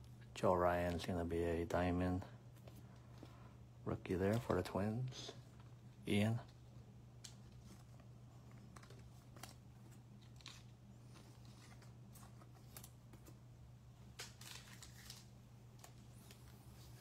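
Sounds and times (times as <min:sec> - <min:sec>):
low steady hum: 0:00.0 - 0:17.0
cards shuffled by hand: 0:07.2 - 0:13.4, 0:14.1 - 0:17.0.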